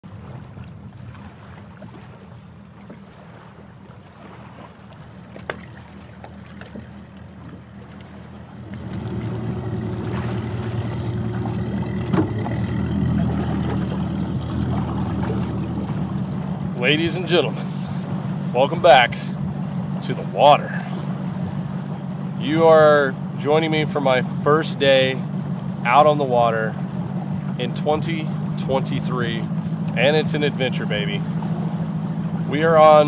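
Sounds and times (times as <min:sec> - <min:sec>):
outboard motor humming: 0:00.0 - 0:33.0.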